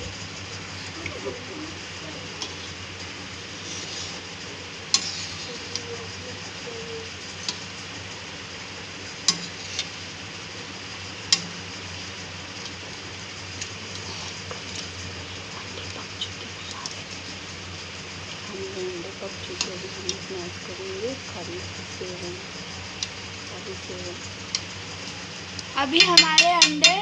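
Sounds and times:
gravy simmering hiss: 0.0s - 27.0s
metal spatula knocking on pan: 25.9s - 27.0s.

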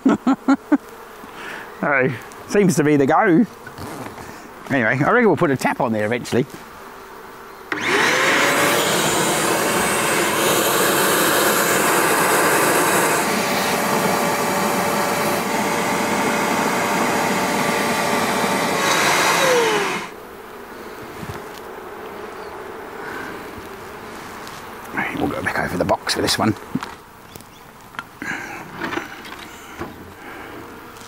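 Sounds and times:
bees buzzing: 0.0s - 31.0s
vacuum cleaner whining: 7.7s - 20.2s.

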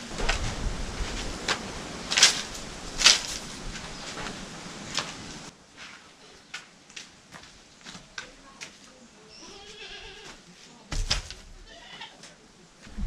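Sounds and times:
footsteps on dry dirt: 0.0s - 12.1s
dry sticks rustling and clattering: 0.0s - 13.0s
sticks cracking: 0.1s - 5.3s.

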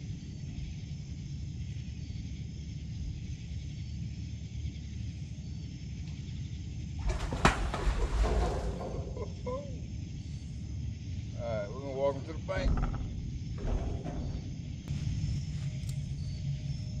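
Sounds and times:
chirping insects: 0.0s - 17.0s
low rumble: 12.4s - 17.0s.

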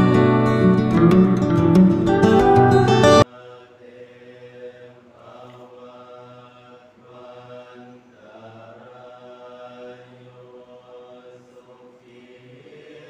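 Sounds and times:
group chanting in unison: 3.2s - 13.0s.

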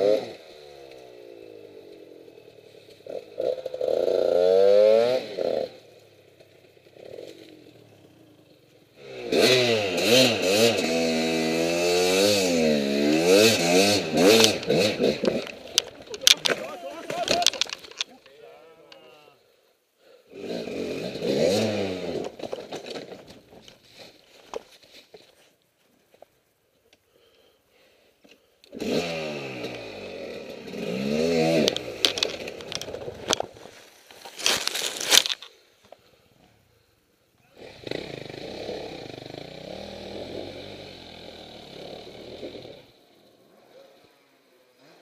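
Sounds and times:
dirt bike engine revving: 0.0s - 19.4s, 20.3s - 22.5s, 28.7s - 33.2s, 37.5s - 45.0s.

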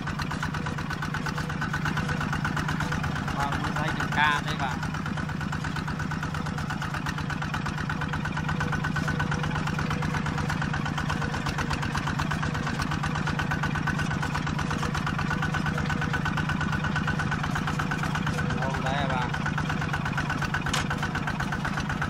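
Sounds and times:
tractor engine chugging: 0.0s - 22.0s.

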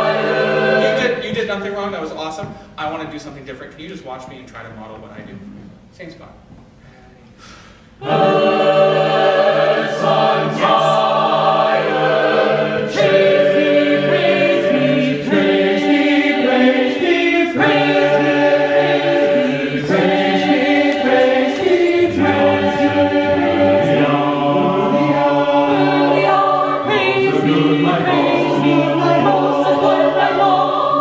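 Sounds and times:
choir singing a cappella: 0.0s - 1.7s, 8.0s - 31.0s.

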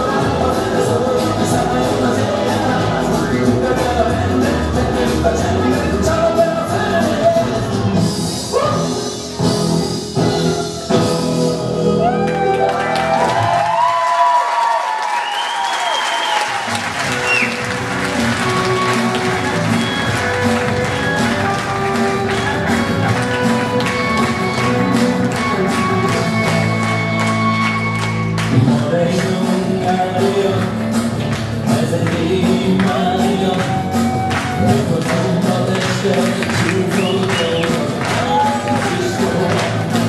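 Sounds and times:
dance music: 0.0s - 14.3s, 16.2s - 40.0s
audience applauding: 12.0s - 40.0s.

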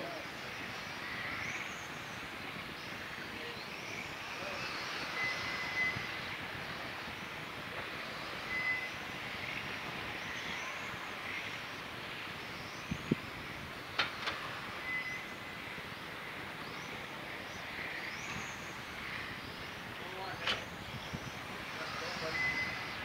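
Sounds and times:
rc car motors whining: 0.0s - 23.0s
steady hiss: 0.0s - 23.0s
short high beeps: 5.1s - 6.2s, 8.4s - 9.0s, 14.9s - 15.3s, 22.2s - 23.0s.

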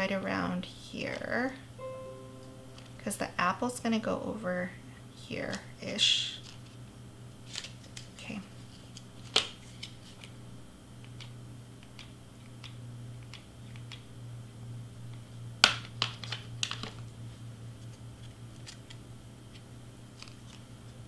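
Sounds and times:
low steady hum: 0.0s - 7.4s.

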